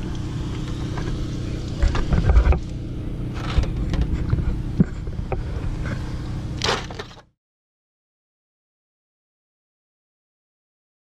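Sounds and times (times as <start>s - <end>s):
steady low hum: 0.0s - 7.3s.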